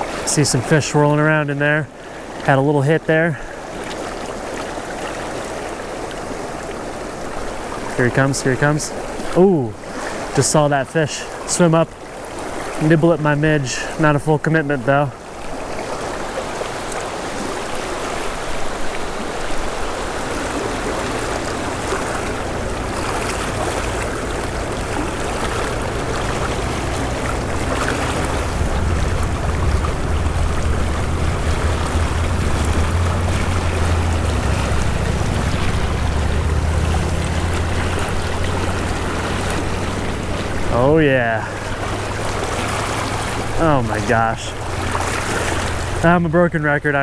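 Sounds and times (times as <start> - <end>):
creek water rushing over cobbles: 0.0 - 47.0
low steady hum: 20.4 - 46.6.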